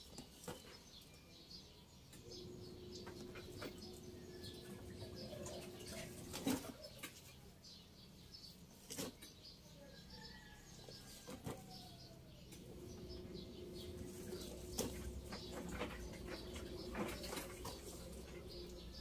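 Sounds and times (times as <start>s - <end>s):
steady low hum: 2.2s - 6.6s, 12.4s - 19.0s.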